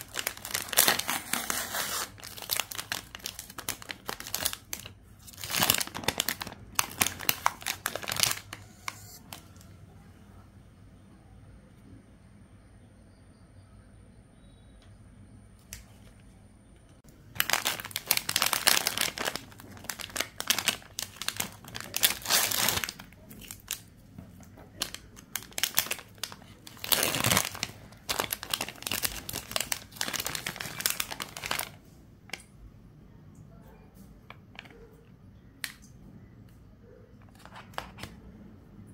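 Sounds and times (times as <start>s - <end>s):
plastic wrapper crinkling: 0.0s - 9.6s, 17.3s - 23.9s, 24.6s - 32.4s.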